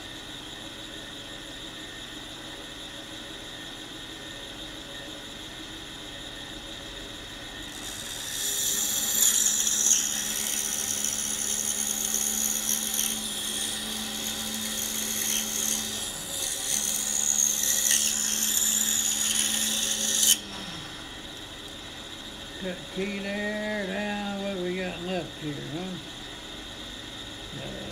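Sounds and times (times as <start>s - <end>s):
bandsaw cutting wood: 7.8s - 20.9s.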